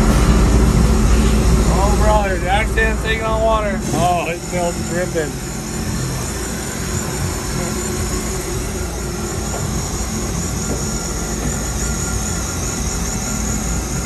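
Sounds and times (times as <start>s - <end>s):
jet ski engine running: 3.8s - 14.0s.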